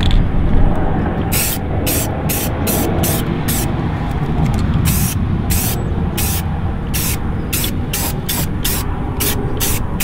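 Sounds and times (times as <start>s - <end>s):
low rumble: 0.0s - 10.0s
spray paint can hissing: 1.3s - 3.7s, 4.9s - 10.0s.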